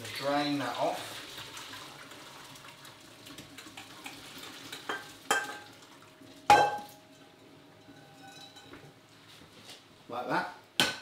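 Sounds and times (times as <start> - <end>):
metal pan clanking: 4.9 - 5.7, 6.5 - 7.0, 7.8 - 8.8.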